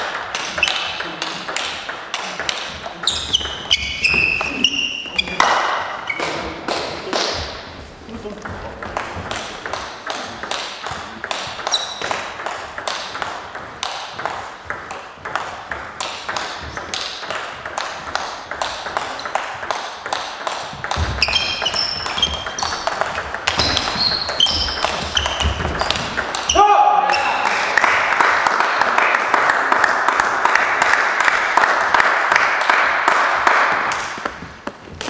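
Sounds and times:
shoes squeaking on floor: 0.0s - 1.5s, 2.7s - 17.5s, 18.3s - 27.5s
table tennis balls clicking: 0.0s - 35.0s.

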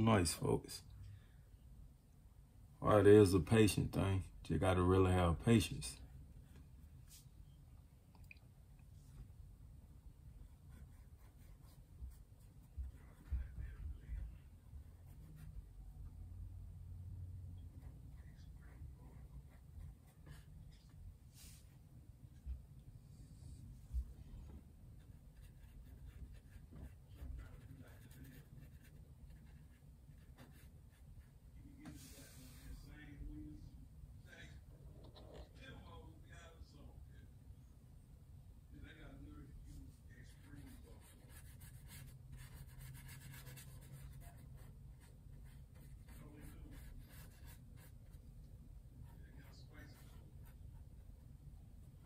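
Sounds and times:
paintbrush strokes on canvas: 19.6s - 21.9s, 31.8s - 33.0s.

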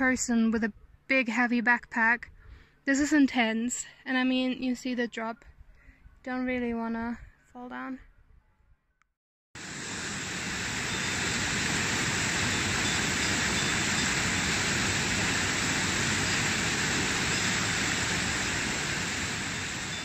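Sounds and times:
stream rushing over rocks: 9.6s - 20.0s.

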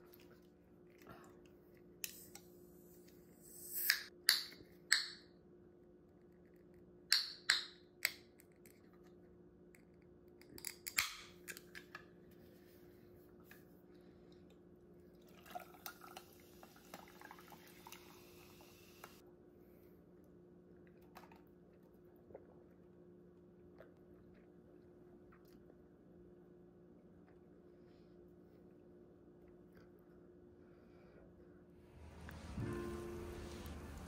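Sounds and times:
fizzy water pouring over ice: 15.2s - 19.0s.

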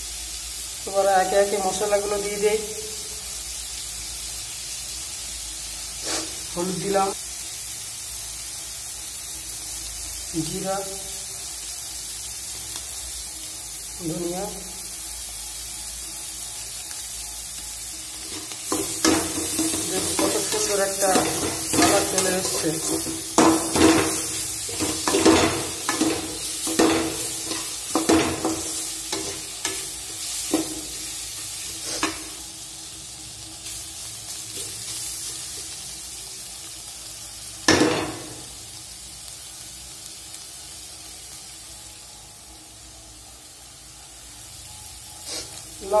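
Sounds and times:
food sizzling in a pan: 0.0s - 46.0s
metal spoon scraping a pan: 18.2s - 30.9s.

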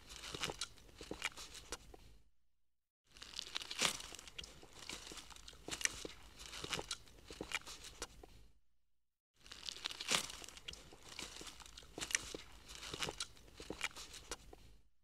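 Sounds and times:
deer chewing grass: 4.1s - 8.3s, 9.7s - 14.6s.

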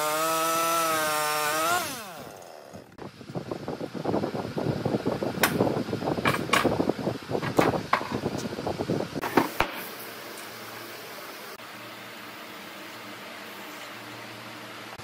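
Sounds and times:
wood thumps and scrapes: 7.4s - 8.5s, 9.2s - 9.8s.

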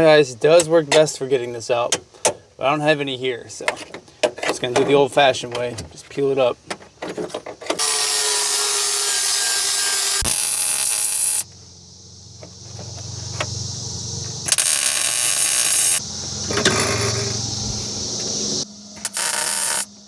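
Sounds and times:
power tool running at full speed: 7.8s - 11.4s, 19.0s - 19.9s.

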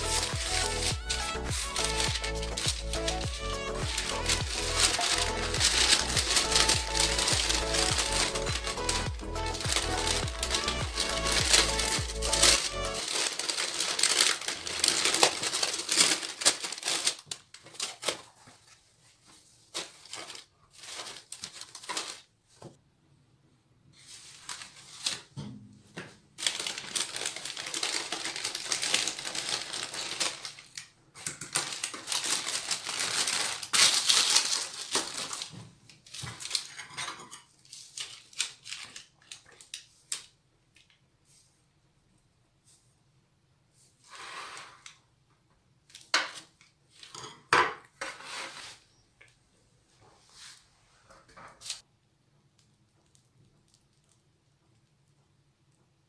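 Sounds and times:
parchment paper crinkling: 0.0s - 22.7s, 23.9s - 25.4s, 26.4s - 41.0s.

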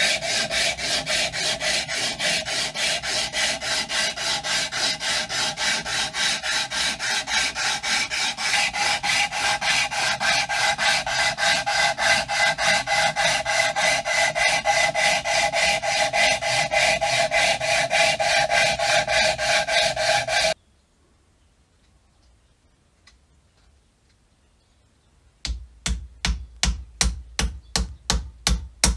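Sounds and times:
scraper rasping on wood: 0.0s - 20.6s.

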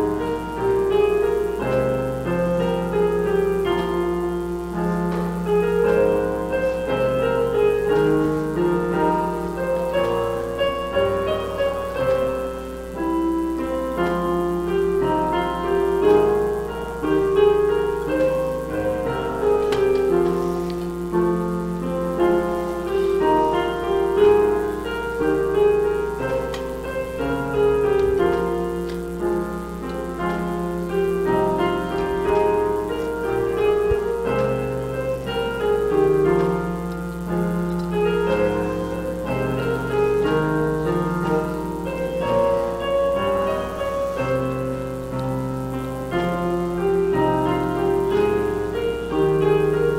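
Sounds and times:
piano playing chords: 0.0s - 49.9s.

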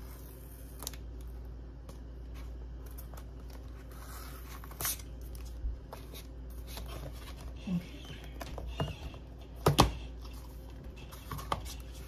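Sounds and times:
cardboard rustling and scraping: 2.2s - 9.2s.

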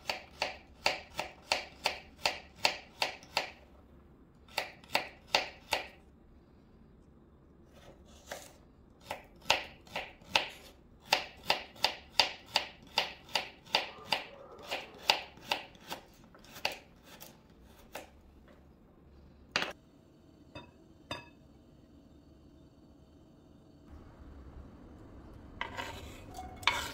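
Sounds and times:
knife chopping on cutting board: 0.0s - 3.6s, 7.8s - 18.2s.

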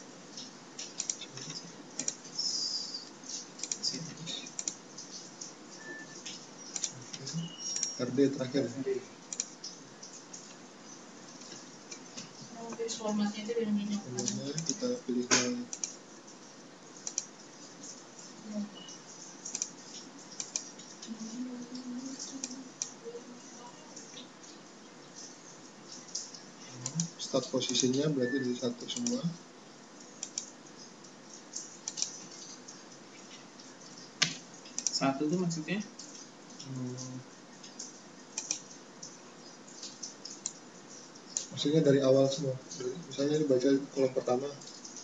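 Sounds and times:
typing on keyboard: 0.3s - 2.4s, 3.2s - 8.7s, 14.2s - 16.0s, 17.0s - 18.0s, 19.4s - 21.1s, 22.1s - 23.0s, 25.9s - 29.4s, 30.2s - 30.6s, 31.5s - 32.8s, 37.0s - 41.6s
mouse and keyboard clicks: 0.4s - 2.2s, 5.9s - 7.0s, 19.5s - 19.8s, 20.4s - 20.8s, 31.9s - 32.2s, 38.4s - 38.7s
mouse clicking: 0.4s - 5.2s, 5.9s - 8.0s, 9.3s - 10.5s, 14.2s - 16.0s, 17.0s - 17.3s, 19.5s - 20.9s, 30.2s - 30.5s, 31.8s - 32.2s, 34.2s - 35.0s, 37.7s - 38.7s
faint voice murmuring: 36.6s - 37.2s.

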